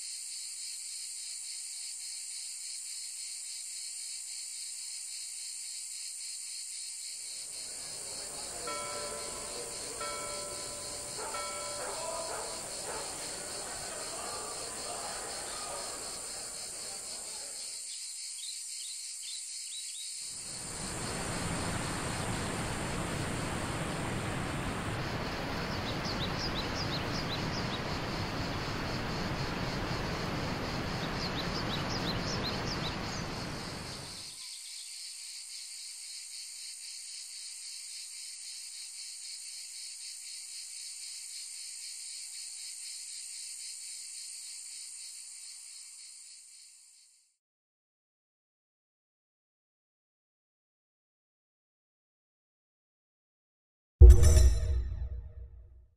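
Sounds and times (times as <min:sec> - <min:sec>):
cicadas buzzing: 0:00.0 - 0:47.2
waterfall rushing: 0:08.3 - 0:14.6
bird chirps: 0:08.4 - 0:13.3.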